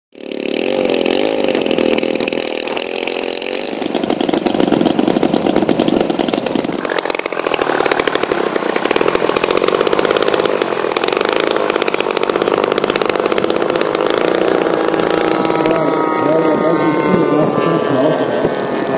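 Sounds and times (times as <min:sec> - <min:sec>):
model airplane engines running: 0:00.2 - 0:18.9.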